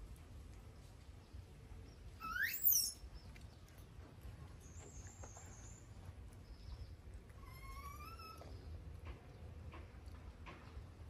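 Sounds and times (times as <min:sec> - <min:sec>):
baby monkey squealing: 0:02.2 - 0:03.0, 0:07.4 - 0:08.5.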